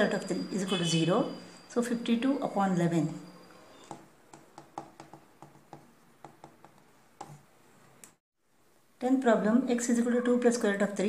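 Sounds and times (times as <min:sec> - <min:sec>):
marker pen tapping on whiteboard: 0:03.9 - 0:07.5.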